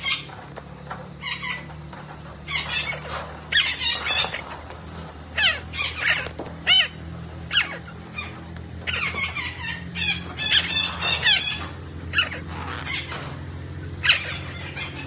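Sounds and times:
parakeet shrill calls: 0.0 - 0.3, 1.2 - 1.7, 2.4 - 4.6, 5.3 - 13.3, 14.0 - 15.0.

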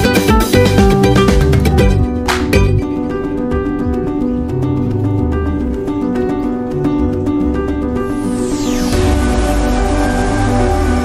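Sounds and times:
plucked notes over bass line: 0.0 - 8.6.

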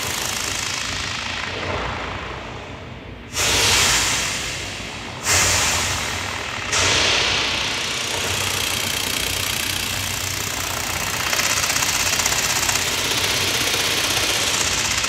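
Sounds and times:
hissy modular synthesizer noise: 0.0 - 15.0.

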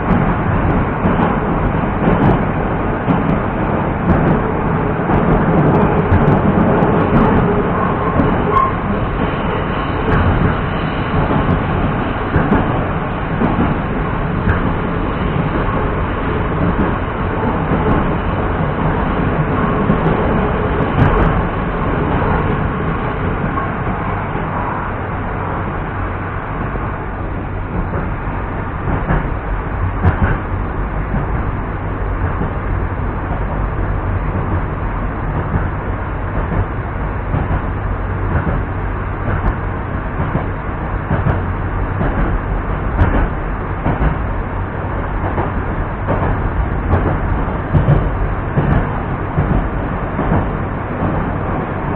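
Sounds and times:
train wheel and rail noise: 0.0 - 51.9.

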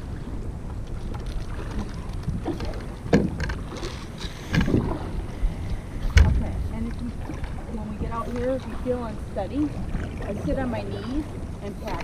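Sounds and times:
wind rumbling on microphone: 0.0 - 12.0
gear knocking against paddle boards: 1.0 - 5.0.

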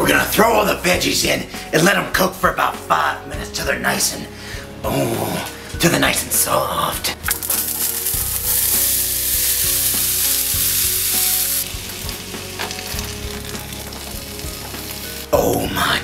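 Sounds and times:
vegetables sizzling in a frying pan: 7.3 - 15.3.

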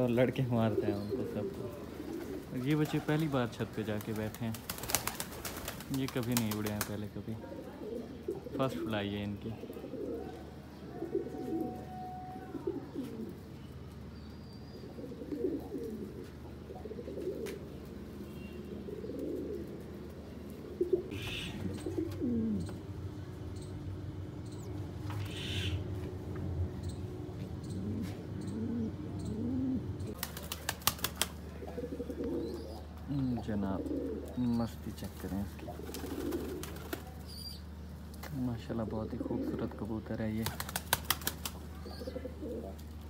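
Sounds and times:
pigeons cooing: 0.0 - 13.6, 14.7 - 23.1, 24.6 - 26.2, 27.2 - 37.8, 38.6 - 43.0
pigeon wings flapping: 3.9 - 7.0, 30.1 - 31.5, 35.1 - 37.2, 40.4 - 41.7.

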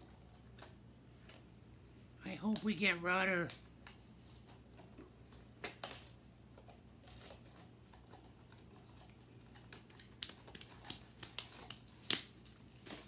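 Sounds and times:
package crinkling: 5.6 - 13.0.

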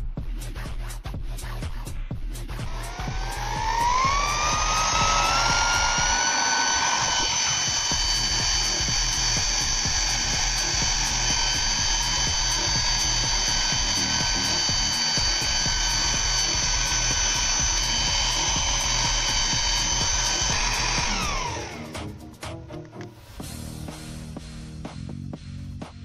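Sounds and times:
vacuum motor whining: 2.6 - 22.2.

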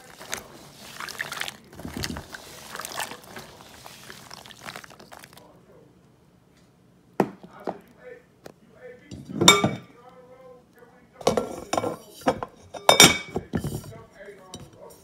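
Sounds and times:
water pouring and splashing: 0.0 - 5.5.

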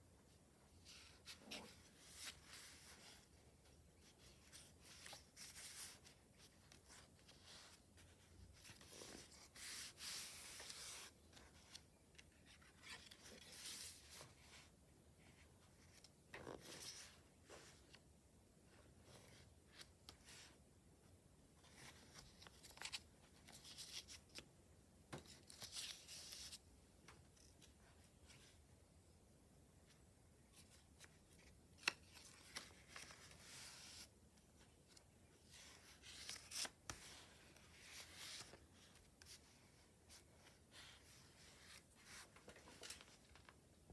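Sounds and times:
paper pages rustling: 4.0 - 14.7, 21.6 - 24.4, 30.5 - 43.6
light clicks of pages settling: 30.7 - 33.4, 42.3 - 43.6.

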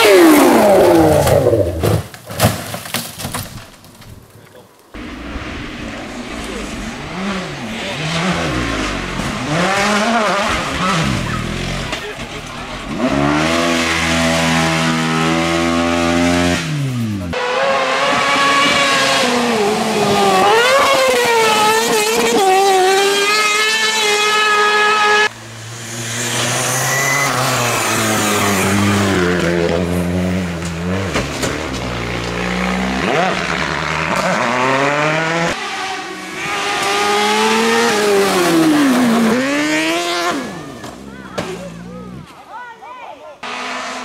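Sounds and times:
rally car engines revving: 0.0 - 1.9, 5.0 - 42.4, 43.4 - 44.0.

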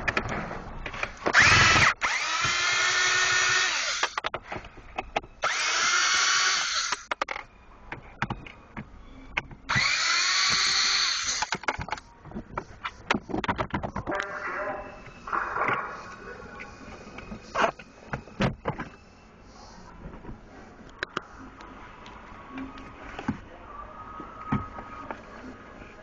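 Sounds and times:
cordless screwdriver whining: 1.3 - 4.2, 5.4 - 7.2, 9.7 - 11.6.

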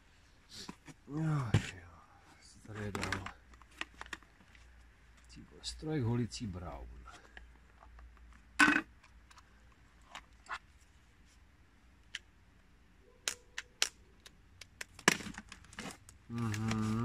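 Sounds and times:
short voice sound: 16.3 - 17.0.

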